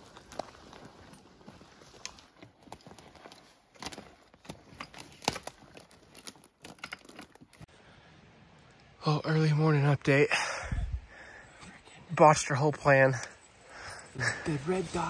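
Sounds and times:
footsteps on rough ground: 0.0 - 6.7.

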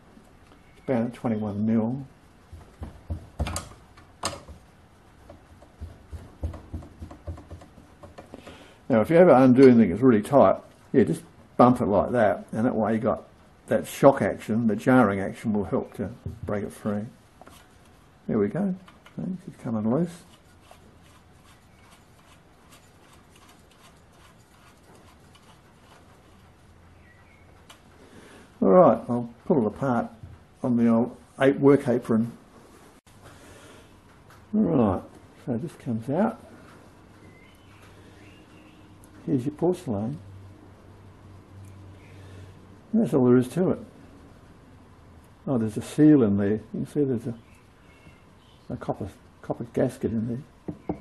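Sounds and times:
metal threads ticking and scraping: 20.3 - 26.4.

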